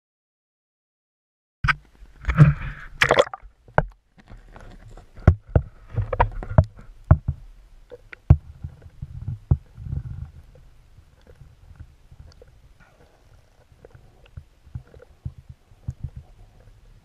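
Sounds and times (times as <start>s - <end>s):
muffled underwater knocks: 5.2s - 7.4s
low underwater rumble: 5.3s - 17.0s.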